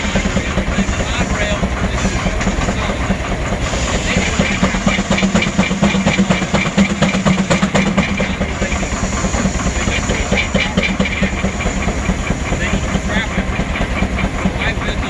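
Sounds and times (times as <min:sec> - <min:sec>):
sawmill machinery running: 0:00.0 - 0:15.0
steam engine exhaust beating: 0:00.0 - 0:15.0.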